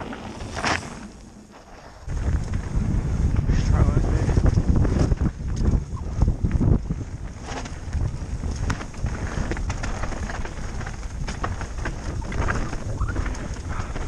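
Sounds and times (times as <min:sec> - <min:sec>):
bike clicks and rattles: 0:00.0 - 0:14.0
tyres rumbling on dirt: 0:00.0 - 0:14.0
wind buffeting microphone: 0:02.0 - 0:14.0.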